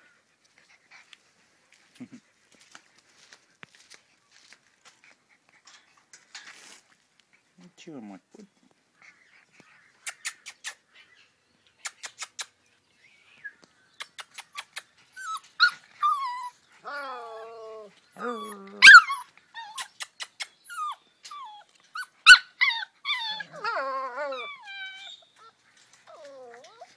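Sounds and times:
puppies yipping and howling: 15.1s - 19.9s, 20.6s - 26.9s.

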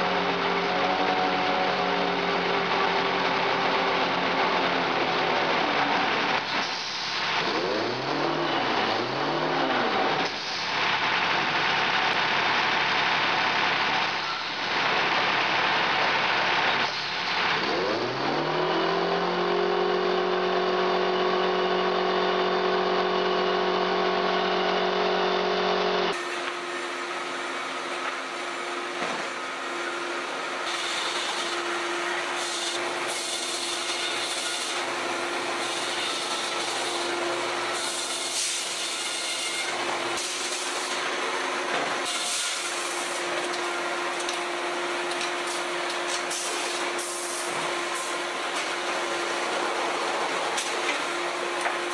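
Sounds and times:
diesel truck engine: 0.0s - 39.0s, 39.6s - 51.9s.

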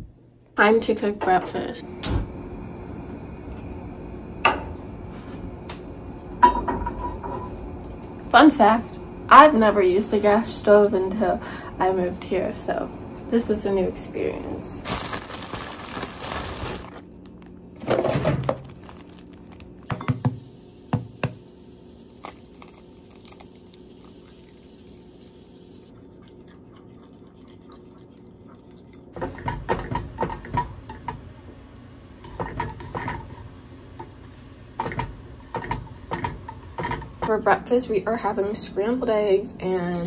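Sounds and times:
steady low hum: 0.0s - 40.0s
utensils knocking and clattering: 34.8s - 37.4s.

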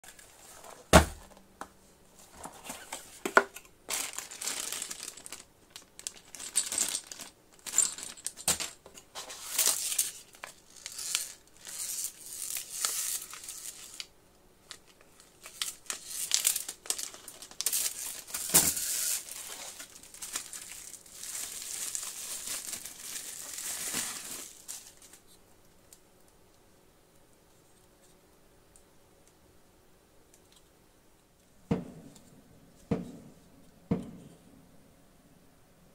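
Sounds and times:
plastic and bubble wrap crinkling: 2.2s - 25.4s
knock: 31.7s - 32.0s.

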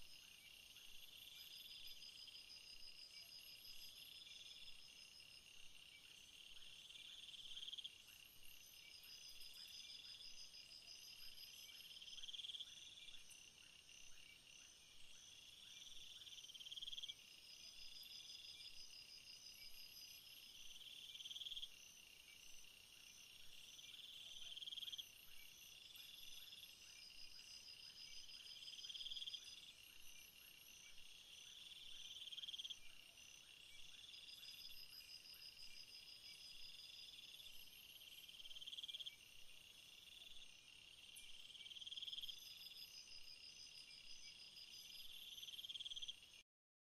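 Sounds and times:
high rapid insect chirps: 23.7s - 46.4s
pulsed insect chirping: 23.9s - 46.3s.

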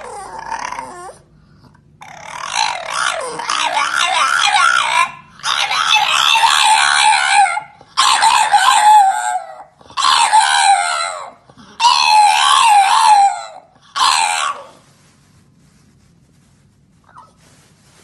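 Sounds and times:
animal wavering cries: 0.0s - 1.3s, 2.0s - 14.9s.

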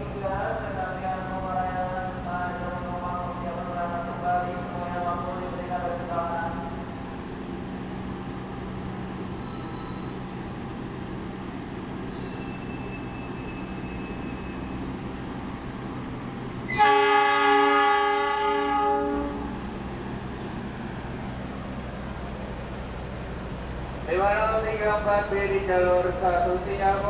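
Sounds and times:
locomotive horn blast: 16.7s - 19.6s.

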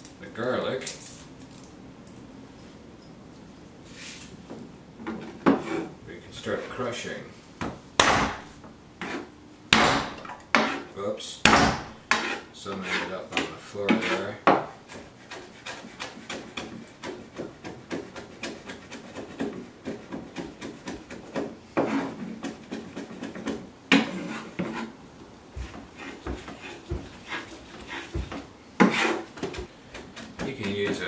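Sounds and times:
knife chopping on wooden board: 7.6s - 24.9s, 25.5s - 31.0s.

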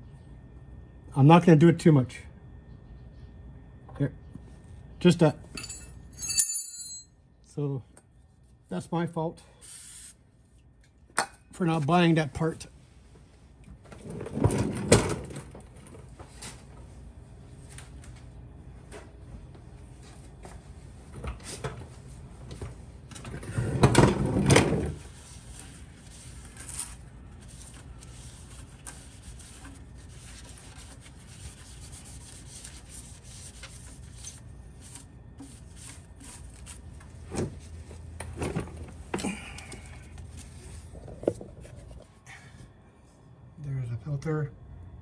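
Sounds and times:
paper towel rubbing and scraping: 25.0s - 36.9s.

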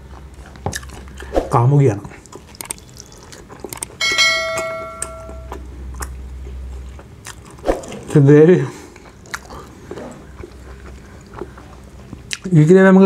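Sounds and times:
bell chime ringing: 4.0s - 5.6s.

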